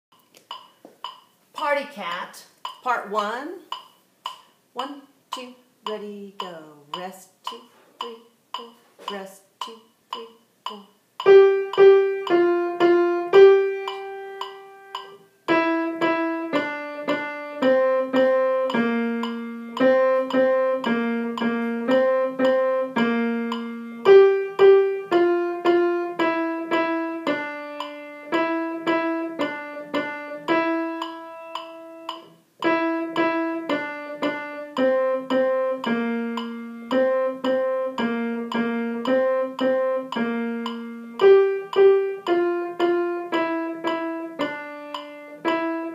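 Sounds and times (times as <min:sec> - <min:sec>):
grand piano playing: 0:11.3 - 0:45.9.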